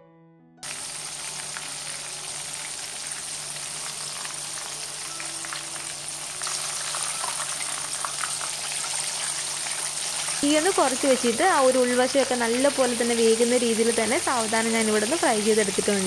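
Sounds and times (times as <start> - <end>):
chicken deep-frying in oil: 0.6 - 16.0
sizzle with fine crackles: 0.6 - 16.0.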